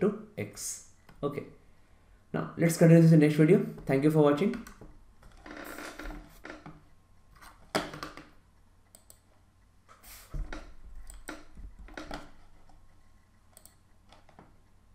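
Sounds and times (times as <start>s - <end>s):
mouse and keyboard clicks: 10.4s - 12.8s.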